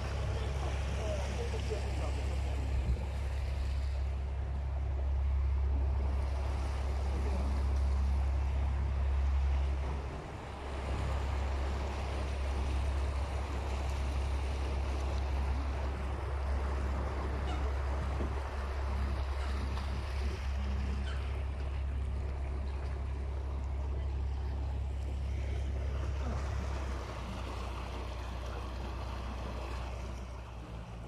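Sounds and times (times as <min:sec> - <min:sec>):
boat engine humming: 0:00.0 - 0:31.0
water rushing along hull: 0:00.0 - 0:31.0.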